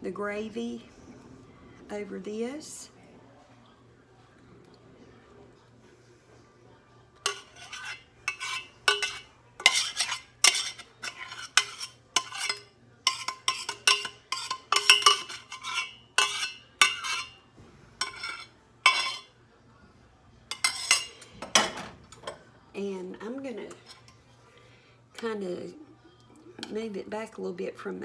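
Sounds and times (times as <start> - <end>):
metal spoon scraping saucepan: 7.2 - 17.4, 18.0 - 19.4, 20.5 - 22.3, 23.6 - 24.2.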